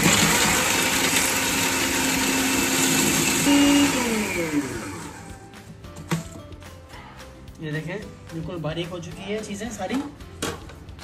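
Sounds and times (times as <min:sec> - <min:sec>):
food processor chopping: 0:00.0 - 0:05.3.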